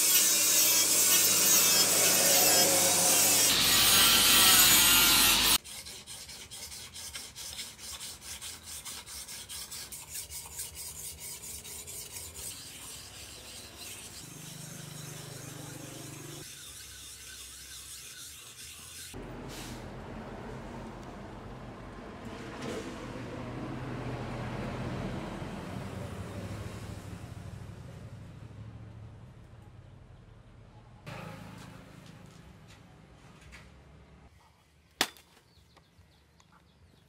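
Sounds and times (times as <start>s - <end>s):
rasping on a knife: 5.4s - 19.2s.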